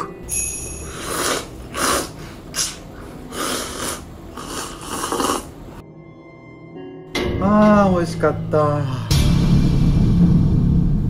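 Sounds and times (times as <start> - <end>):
person slurping noodles: 0.9 - 5.7.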